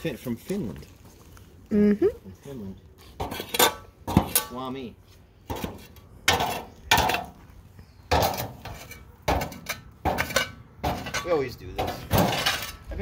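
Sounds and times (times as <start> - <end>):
shovel scraping concrete: 3.1 - 4.6, 8.1 - 13.0.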